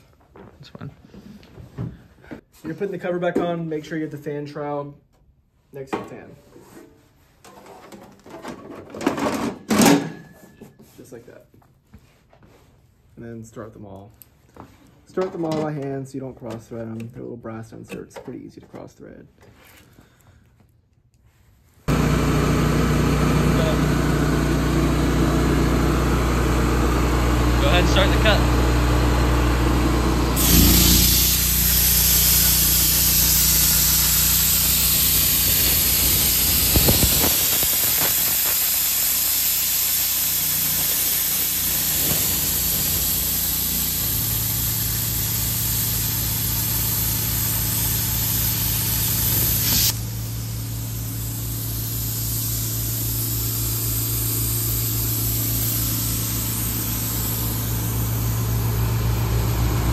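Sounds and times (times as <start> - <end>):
engine running: 21.9 - 59.9
plasma cutter hissing: 30.4 - 58.9.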